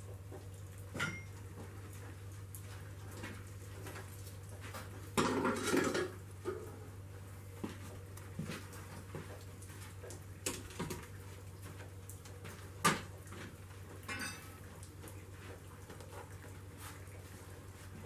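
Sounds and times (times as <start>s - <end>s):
low steady hum: 0.0s - 18.0s
metal clanks and clinks: 14.1s - 14.5s.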